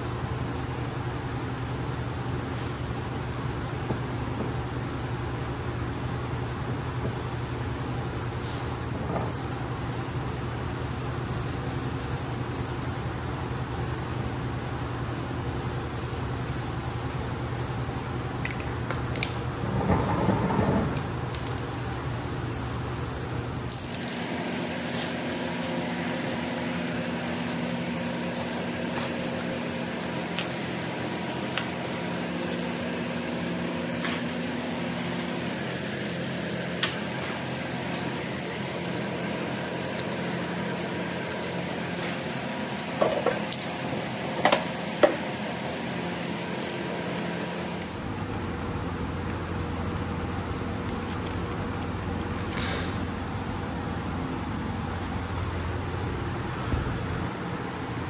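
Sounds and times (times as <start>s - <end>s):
fans humming: 0.0s - 58.0s
spray paint hissing: 8.4s - 18.2s, 21.4s - 42.4s.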